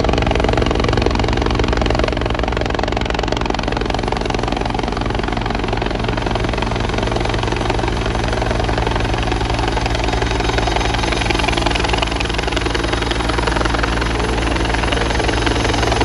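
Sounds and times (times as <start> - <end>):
helicopter engine: 0.0 - 16.0
helicopter rotor beating: 0.0 - 16.0.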